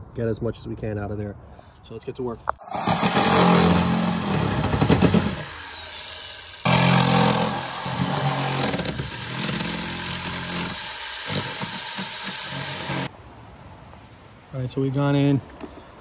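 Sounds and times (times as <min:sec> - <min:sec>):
electric power tool cutting: 0:02.6 - 0:13.1.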